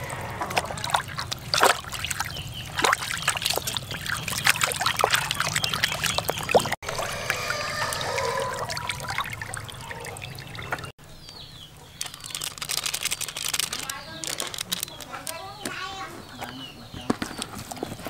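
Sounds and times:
water sloshing in a basin: 0.0 - 11.0
water trickling and dripping: 0.0 - 11.0.

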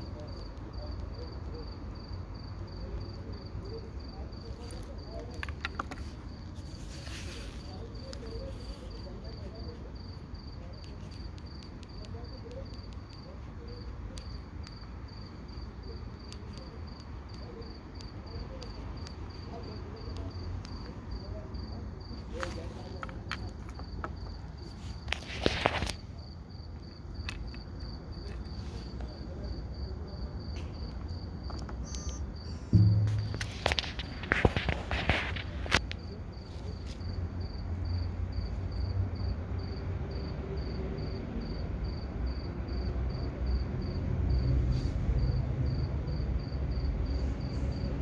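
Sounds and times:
cricket chirping: 0.0 - 48.0
handling rustle: 4.6 - 9.0
watches thumping on wooden bench: 32.8 - 34.8.

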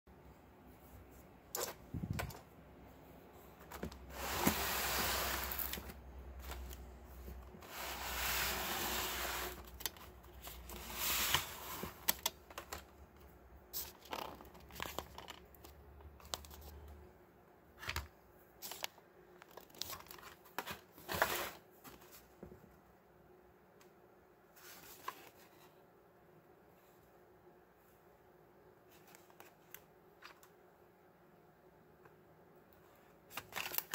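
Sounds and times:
plastic and card rustling: 3.6 - 17.0, 17.8 - 22.3, 33.2 - 33.9.

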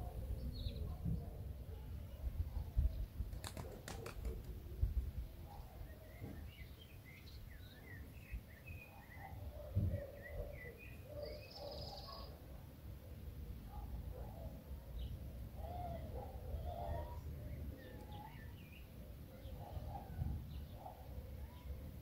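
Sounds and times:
small birds chirping: 5.2 - 12.5, 13.6 - 21.9.

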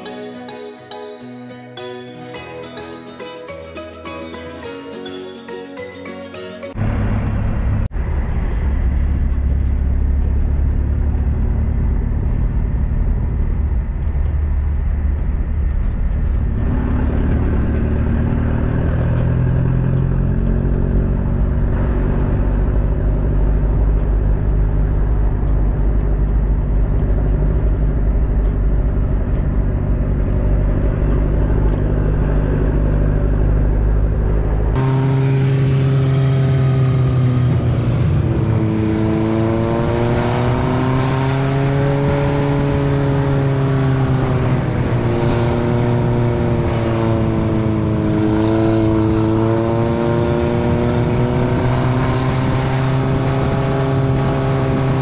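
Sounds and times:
deep road rumble: 1.8 - 55.0
truck engine note: 16.5 - 49.8.

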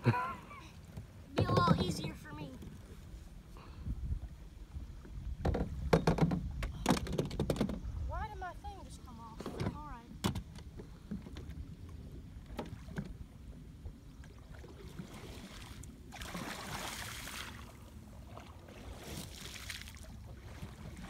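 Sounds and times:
paddle strokes in water: 0.8 - 21.0
water swish: 10.8 - 21.0.

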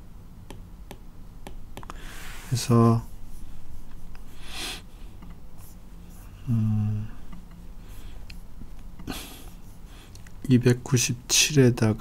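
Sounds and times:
man breathing: 1.9 - 2.5, 9.0 - 10.2
man humming: 6.4 - 7.2.

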